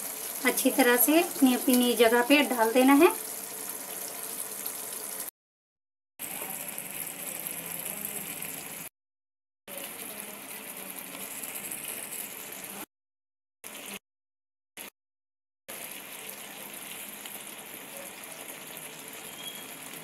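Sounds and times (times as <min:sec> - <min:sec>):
gravy bubbling and sizzling in pan: 0:00.0 - 0:05.3, 0:06.2 - 0:08.9, 0:09.7 - 0:12.9, 0:15.7 - 0:20.0.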